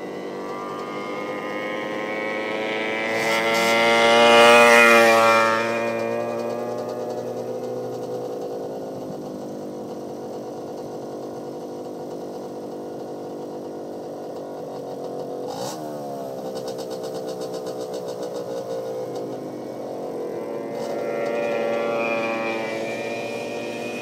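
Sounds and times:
vehicle passing close by: 0:00.0 - 0:07.6, 0:18.2 - 0:24.0
racing vehicle engines passing by: 0:00.0 - 0:09.2, 0:16.5 - 0:24.0.

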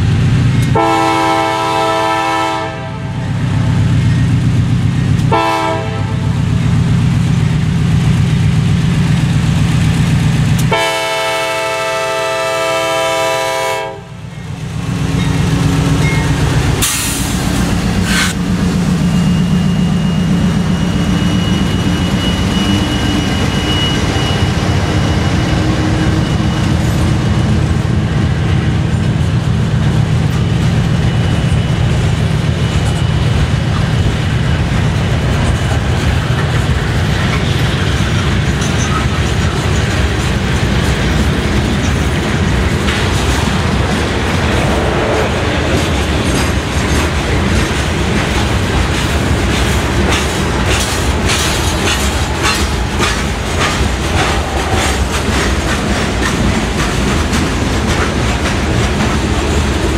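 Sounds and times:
diesel locomotive rumble: 0:00.0 - 0:59.9
locomotive air horn: 0:00.7 - 0:03.2, 0:05.3 - 0:06.3, 0:10.7 - 0:14.2
wheels clacking over rail joints: 0:25.6 - 0:59.9.

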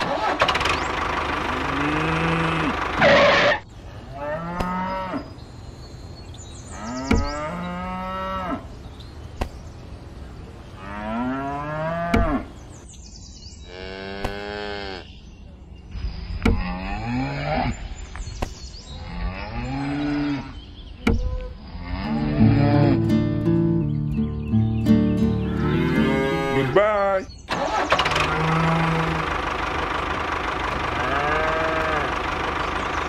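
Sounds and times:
cattle mooing: 0:01.6 - 0:05.3, 0:10.8 - 0:12.5, 0:21.8 - 0:23.1, 0:25.5 - 0:26.8, 0:28.2 - 0:29.4, 0:30.9 - 0:32.2.

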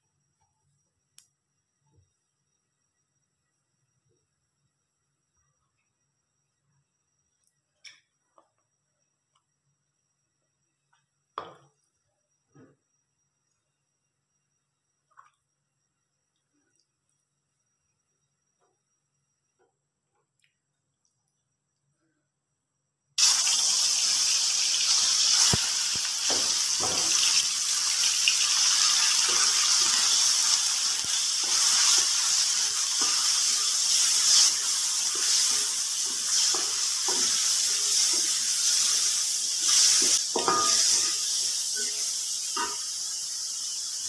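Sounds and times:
meat sizzling in hot oil: 0:23.2 - 0:44.0.

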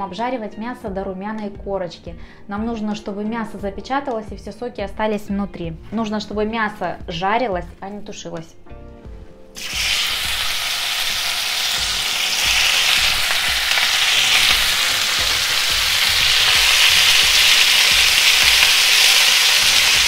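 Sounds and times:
meat sizzling in hot oil: 0:09.6 - 0:20.0.

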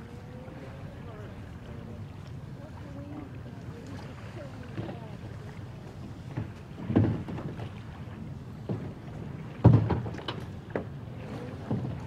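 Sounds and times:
plastic kayak thumping: 0:09.6 - 0:10.9.

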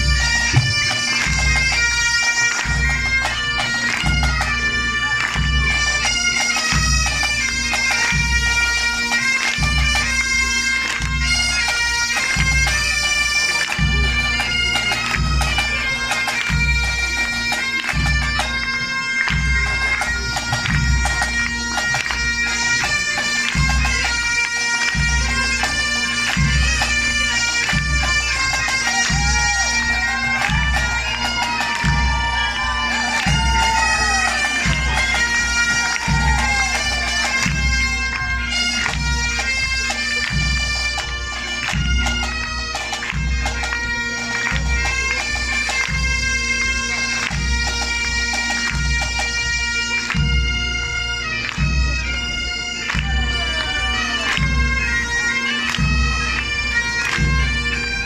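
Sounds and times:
bass drum beating: 0:00.0 - 0:01.6
bagpipes playing a tune: 0:00.0 - 0:58.0.

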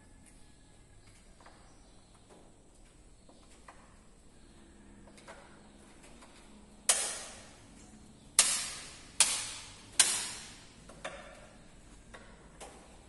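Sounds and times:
sharp knocks with echo: 0:06.9 - 0:07.6, 0:08.4 - 0:12.4.

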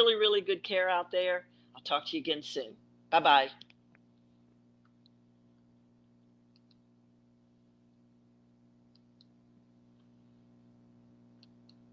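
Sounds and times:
low electrical hum: 0:00.0 - 0:11.9
faint clicks: 0:06.5 - 0:06.9, 0:11.4 - 0:11.9.

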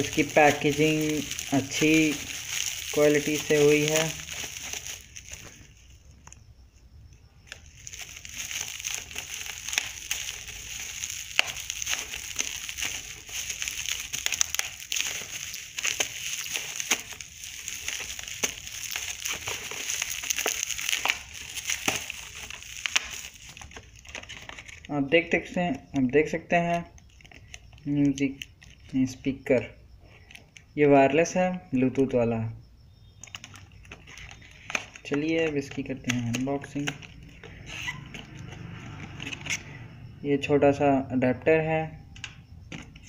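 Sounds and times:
bubble wrap crackling: 0:00.0 - 0:06.4, 0:07.4 - 0:24.9, 0:26.8 - 0:29.0, 0:33.2 - 0:39.6.

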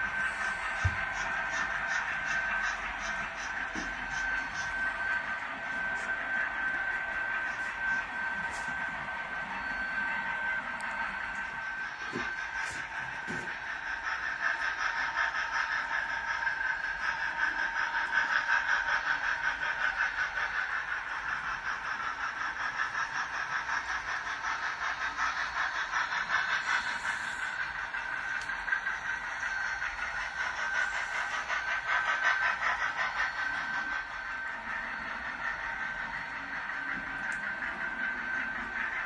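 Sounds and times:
model steam train chuffing: 0:00.0 - 0:39.0.

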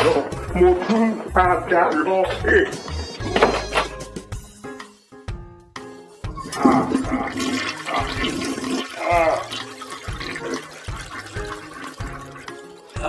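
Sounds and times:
toilet flushing: 0:06.3 - 0:13.0
water gurgling: 0:06.4 - 0:13.0.

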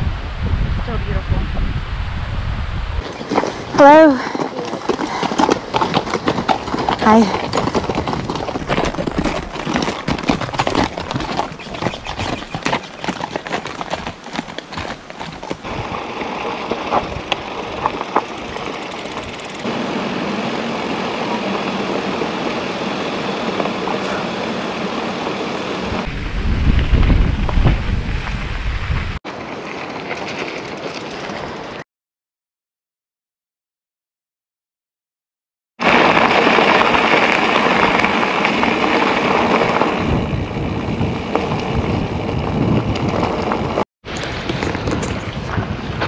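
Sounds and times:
heavy low wind rumble: 0:00.0 - 0:04.3, 0:15.6 - 0:29.2, 0:36.2 - 0:46.0
wind rushing over microphone: 0:00.0 - 0:04.4, 0:05.1 - 0:29.2, 0:35.8 - 0:46.0
bike tyre and trail noise: 0:02.8 - 0:31.8, 0:35.8 - 0:46.0.

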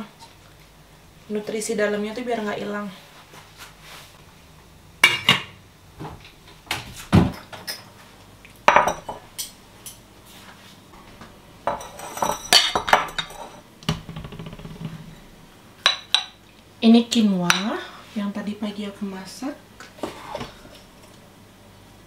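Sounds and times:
kitchenware clinking and knocking: 0:08.7 - 0:09.2, 0:11.7 - 0:15.1.

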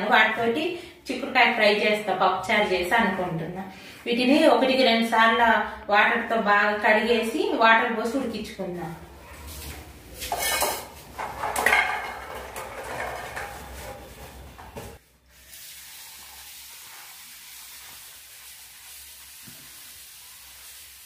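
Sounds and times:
pots and steel bowl clinking: 0:10.2 - 0:15.0.

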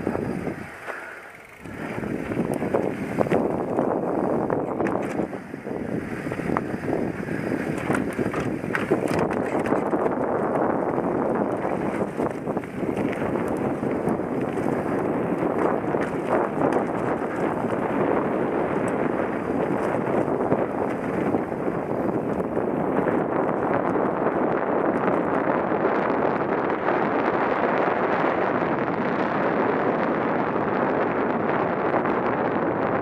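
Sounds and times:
bike rattling clicks and knocks: 0:00.0 - 0:25.5
bike tyres rumbling on dirt: 0:00.0 - 0:33.0
wind buffeting microphone: 0:00.0 - 0:33.0.

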